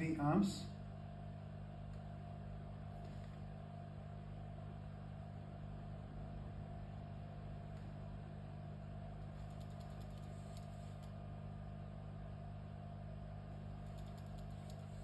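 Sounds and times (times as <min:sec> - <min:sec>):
electrical hum of equipment: 0:00.0 - 0:15.0
faint clicks: 0:09.4 - 0:11.2, 0:13.8 - 0:15.0.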